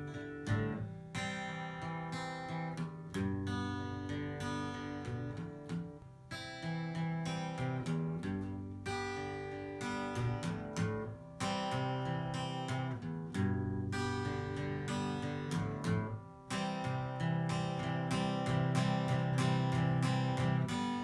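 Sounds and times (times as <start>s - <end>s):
acoustic guitar strumming chords: 0.0s - 21.0s.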